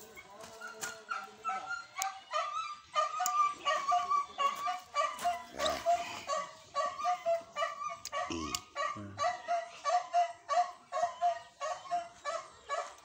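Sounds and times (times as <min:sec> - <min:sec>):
animal yelping: 0:01.2 - 0:09.7.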